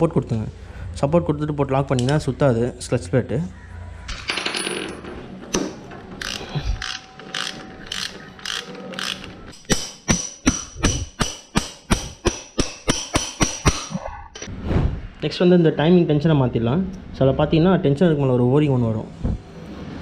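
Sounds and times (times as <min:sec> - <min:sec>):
ratchet wrench clicking: 0:06.2 - 0:13.8.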